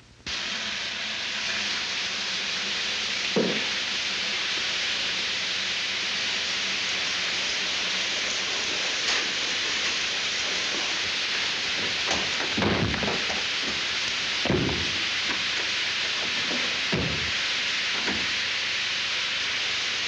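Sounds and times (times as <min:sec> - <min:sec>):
water spraying with a hiss: 0:00.3 - 0:20.0
knock: 0:03.4 - 0:03.7, 0:14.5 - 0:15.0, 0:16.9 - 0:17.4.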